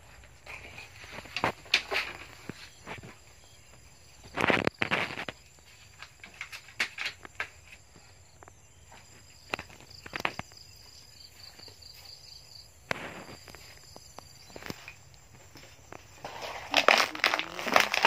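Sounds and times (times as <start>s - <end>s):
sharp clicks and knocks: 6.0s - 7.8s
insect trilling: 15.9s - 18.0s.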